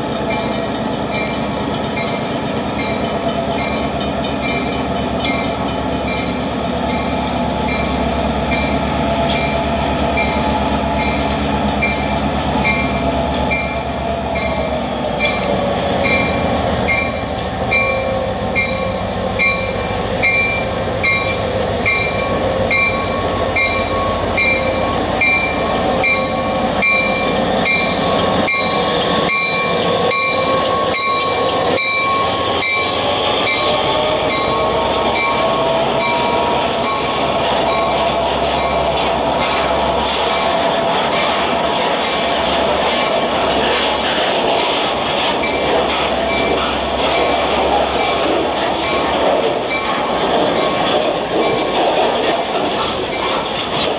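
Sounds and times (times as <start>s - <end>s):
locomotive engine drone: 0.0s - 53.9s
train wheels clicking over rail joints: 0.0s - 53.9s
crossing signal bell dinging: 11.0s - 38.0s.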